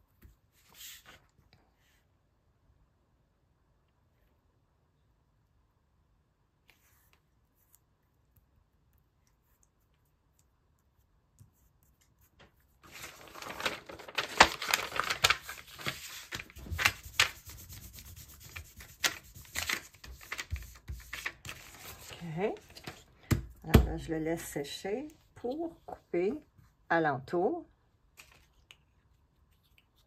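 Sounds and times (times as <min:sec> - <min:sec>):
magazine paper rustling: 0:12.8 - 0:23.2.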